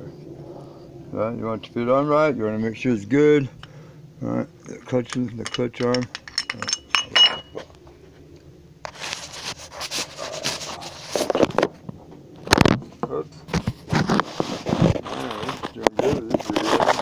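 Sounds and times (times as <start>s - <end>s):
light metal clinks: 4.8s - 7.6s
camera rubbing and scraping: 8.8s - 11.8s, 13.5s - 17.0s.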